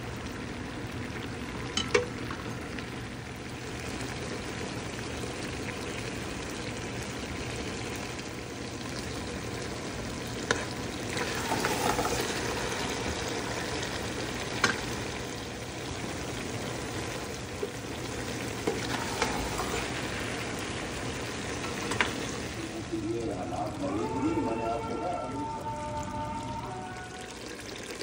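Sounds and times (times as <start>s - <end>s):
food frying in oil: 0.0s - 28.0s
knocks against pan: 1.8s - 2.1s.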